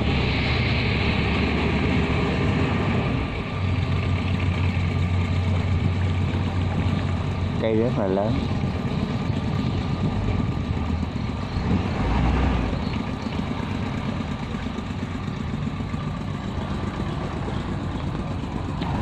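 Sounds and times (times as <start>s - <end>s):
tugboat engine low rumble: 0.0s - 19.0s.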